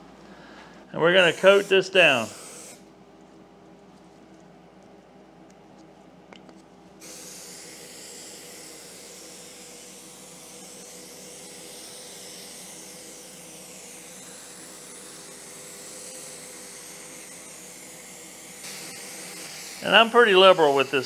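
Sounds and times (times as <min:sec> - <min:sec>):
faint hum: 0:00.0 - 0:19.0
aerosol can spraying: 0:01.2 - 0:02.8, 0:07.0 - 0:21.0.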